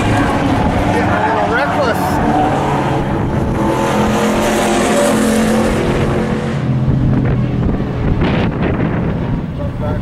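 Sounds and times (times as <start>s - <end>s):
truck engines droning: 0.0s - 10.0s.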